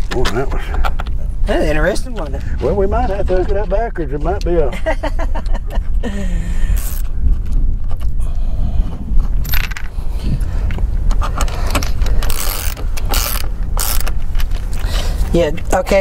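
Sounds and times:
steady low rumble: 0:00.0 - 0:16.0.

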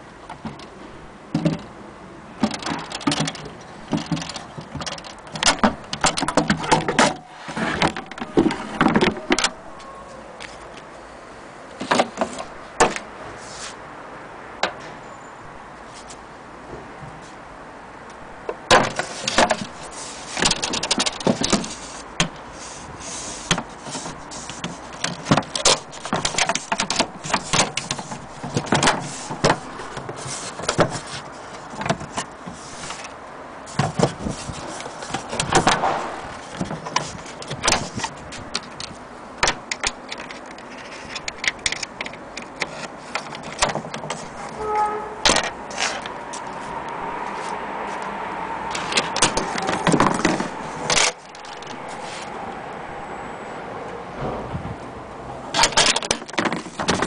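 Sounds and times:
wooden case clicks and knocks: 0:02.4 - 0:09.6, 0:25.0 - 0:31.0, 0:49.0 - 0:51.8, 0:55.6 - 0:57.0
metal latch clicking: 0:55.5 - 0:57.0.

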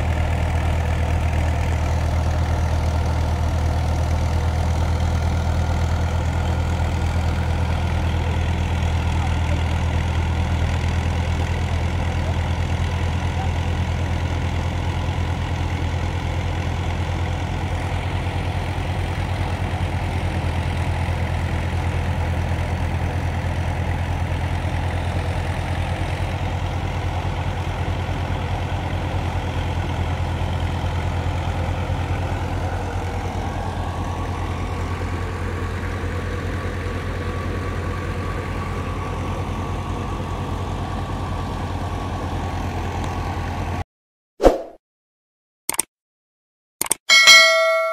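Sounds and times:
tractor engine running: 0:00.0 - 0:43.8.

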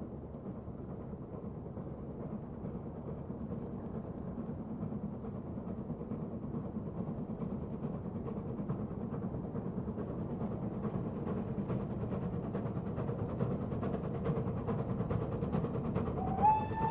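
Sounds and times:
steam locomotive exhaust rumble: 0:00.0 - 0:16.9.

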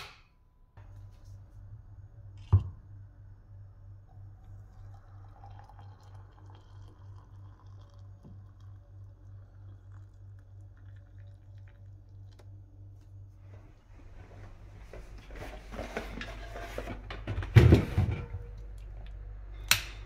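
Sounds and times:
low steady hum: 0:00.0 - 0:20.0
water pouring into mug: 0:04.1 - 0:12.5.

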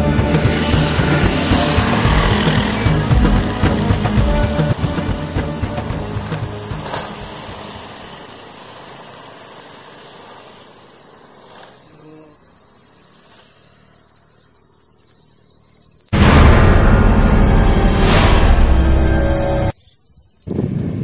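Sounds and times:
low-pitched noise: 0:00.0 - 0:06.6, 0:16.2 - 0:19.7
insects shrilling: 0:00.0 - 0:20.5.

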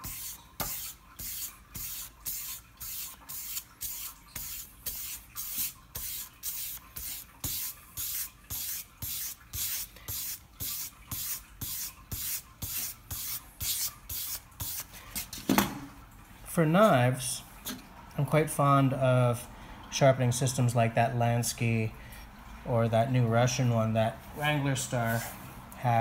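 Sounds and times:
sandpaper rasping on axe blade: 0:00.0 - 0:15.3.

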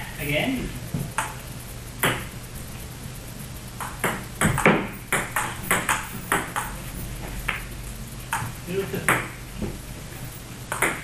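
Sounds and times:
table tennis ball clicking: 0:03.8 - 0:06.7, 0:10.7 - 0:11.0.

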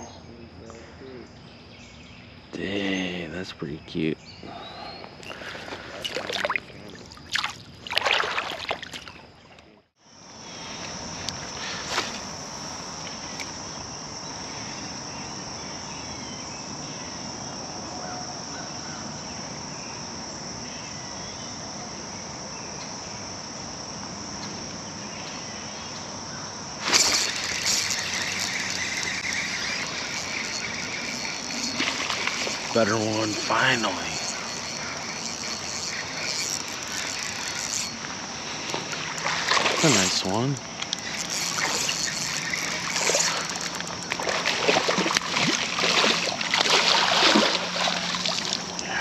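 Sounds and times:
high-pitched insect drone: 0:00.0 - 0:09.2, 0:10.0 - 0:49.0
fish splashing in water: 0:05.2 - 0:09.3, 0:26.8 - 0:48.8
outdoor hiss: 0:10.1 - 0:15.7, 0:26.7 - 0:46.5.

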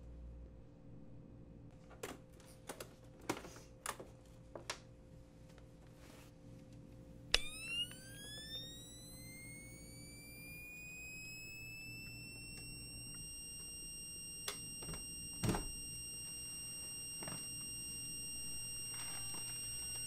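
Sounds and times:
sharp clicks: 0:07.3 - 0:13.7
high electronic tone: 0:07.3 - 0:20.0
low hum: 0:07.3 - 0:20.0.

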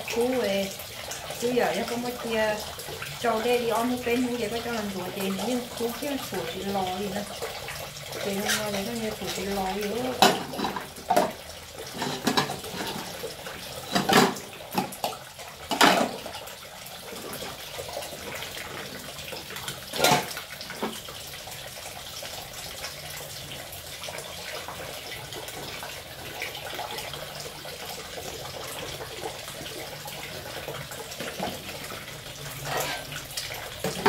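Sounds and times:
tap water running into sink: 0:00.0 - 0:34.0
plates knocking and clattering: 0:10.2 - 0:13.1, 0:13.8 - 0:16.2.

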